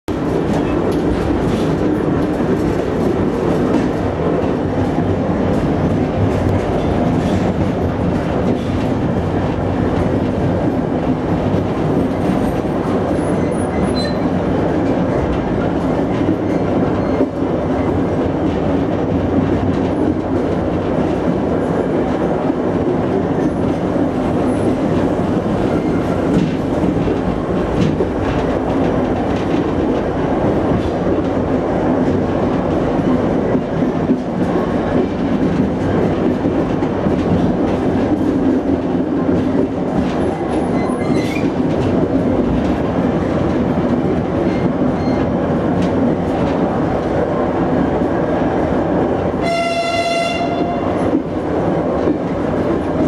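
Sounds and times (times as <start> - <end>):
wheels rumbling on rails: 0.1 - 53.0.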